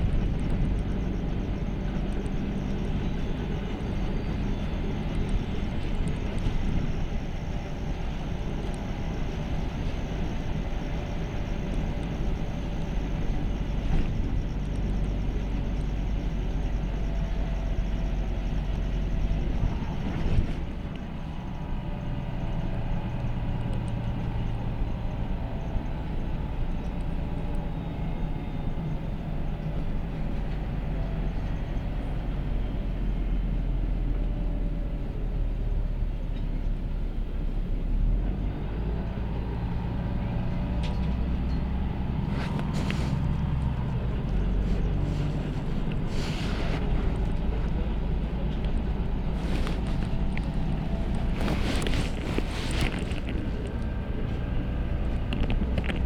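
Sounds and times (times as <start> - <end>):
bus engine droning: 0.0 - 56.0.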